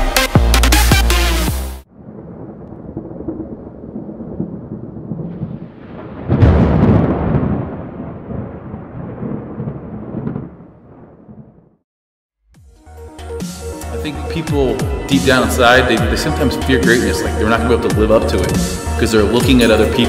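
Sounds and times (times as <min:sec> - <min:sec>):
loud thunderclap: 0:01.9 - 0:11.8
thunder rumbling: 0:01.9 - 0:11.8.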